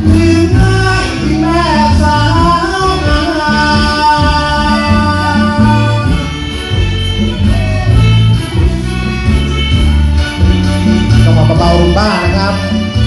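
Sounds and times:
bass and drum beat: 0.0 - 13.0
gliding melody line: 0.0 - 13.0
live band through speakers: 0.0 - 13.0.

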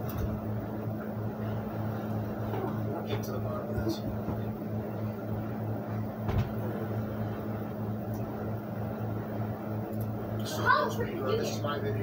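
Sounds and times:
short thump: 6.2 - 6.6.

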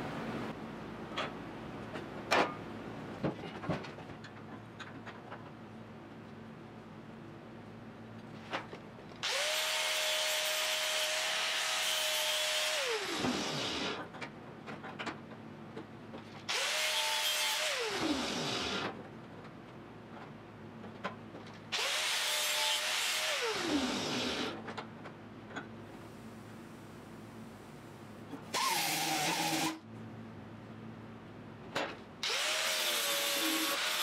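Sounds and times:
angle grinder cutting steel: 9.2 - 14.0, 32.2 - 34.0.

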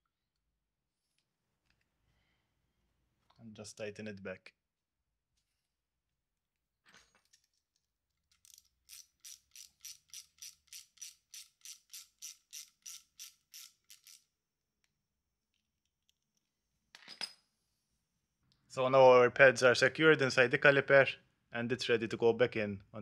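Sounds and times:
hand ratchet clicking: 8.3 - 14.3.

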